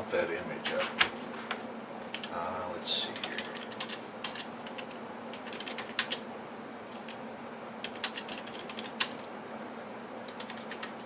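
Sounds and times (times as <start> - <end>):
keyboard keystrokes: 3.2 - 6.2, 7.8 - 9.3, 10.3 - 11.0.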